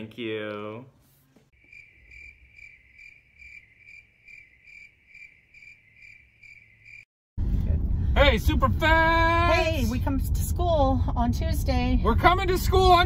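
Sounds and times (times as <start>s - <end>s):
crickets chirping: 1.5s - 7.1s.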